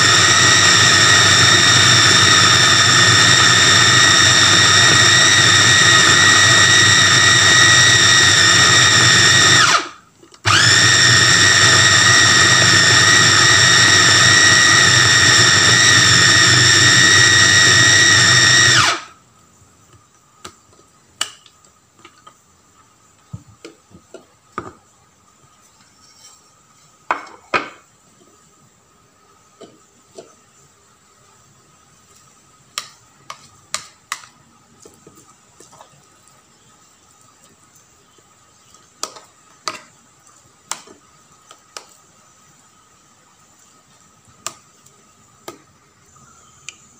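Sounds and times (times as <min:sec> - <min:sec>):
food chopper motor whining: 0:00.0 - 0:19.1.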